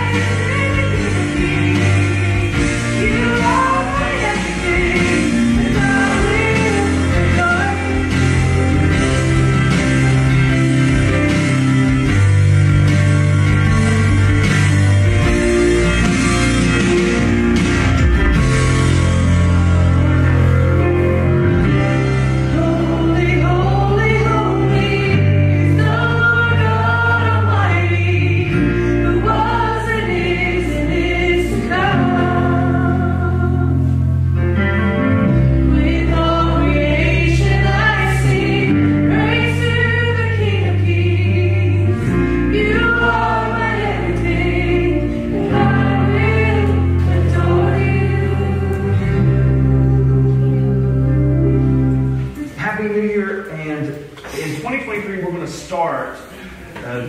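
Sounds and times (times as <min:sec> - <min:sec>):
voices singing worship song: 0:00.0 - 0:10.6, 0:21.6 - 0:34.0, 0:35.6 - 0:51.8
guitar: 0:00.0 - 0:52.6
held bass notes: 0:00.0 - 0:54.8
keyboard: 0:00.0 - 0:57.0.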